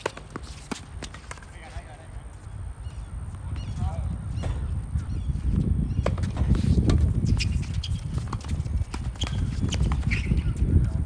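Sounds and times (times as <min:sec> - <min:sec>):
tennis balls struck by racquets: 0:00.0 - 0:01.7, 0:04.4 - 0:04.8, 0:05.5 - 0:10.6.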